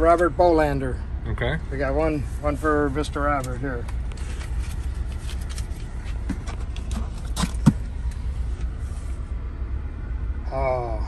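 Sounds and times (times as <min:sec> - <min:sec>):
steady low rumble: 0:00.0 - 0:11.0
light clicks and rustles: 0:03.3 - 0:09.2.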